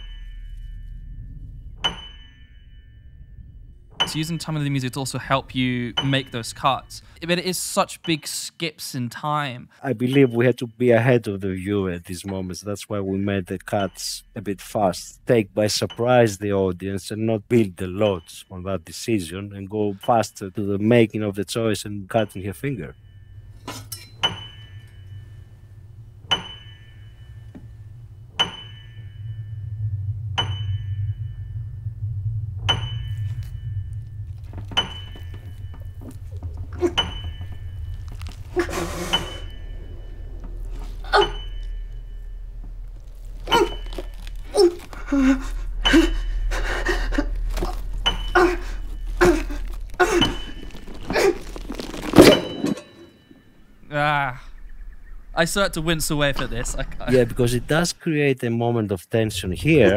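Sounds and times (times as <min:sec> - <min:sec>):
sharp ringing knocks: 0:00.0 - 0:07.2, 0:22.1 - 0:29.7, 0:30.4 - 0:31.5, 0:32.6 - 0:36.2, 0:39.1 - 0:42.9
low steady hum: 0:00.0 - 0:08.2, 0:09.9 - 0:58.0, 0:59.2 - 0:59.9
high metallic chime: 0:00.0 - 0:08.3, 0:22.2 - 0:32.0, 0:32.7 - 0:36.2, 0:39.0 - 0:44.4.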